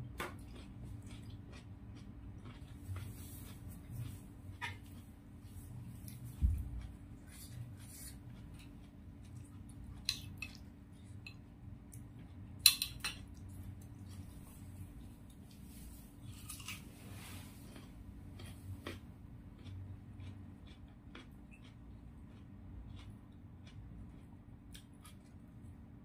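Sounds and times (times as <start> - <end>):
chewing and mouth noises: 0.3 - 16.8, 17.6 - 25.5
spoon clicking on a plate: 12.6 - 13.2.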